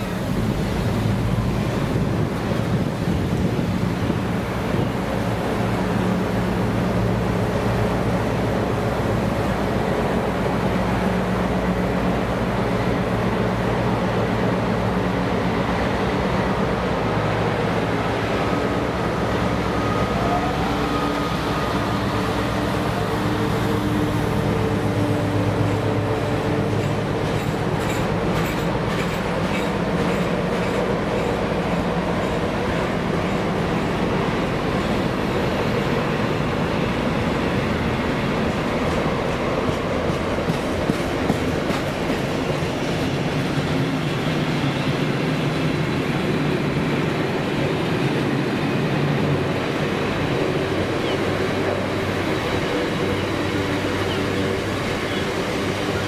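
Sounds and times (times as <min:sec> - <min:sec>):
diesel locomotive engine running: 0:00.0 - 0:56.0
wheels clicking over rail joints: 0:24.6 - 0:34.1, 0:38.4 - 0:44.1.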